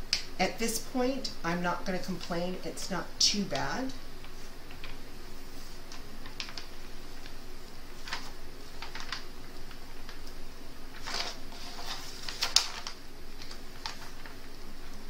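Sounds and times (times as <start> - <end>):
plastic sheet clicks and crinkles: 5.9 - 7.4, 8.0 - 15.0
sheet rustling: 11.0 - 12.9.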